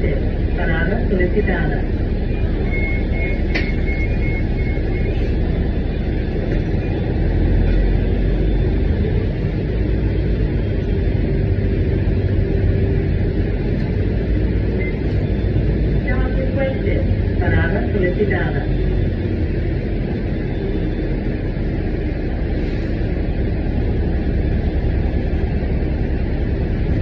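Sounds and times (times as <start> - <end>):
bus engine and road rumble: 0.0 - 27.0.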